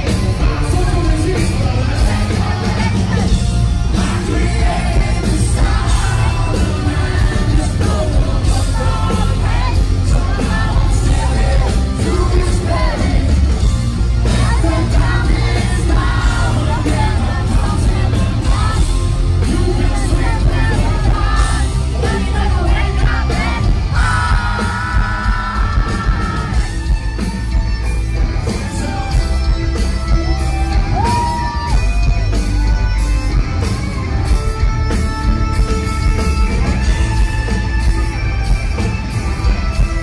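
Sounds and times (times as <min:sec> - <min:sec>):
man singing: 0:00.0 - 0:26.8
audience yelling: 0:00.0 - 0:40.0
live hard rock band: 0:00.0 - 0:40.0.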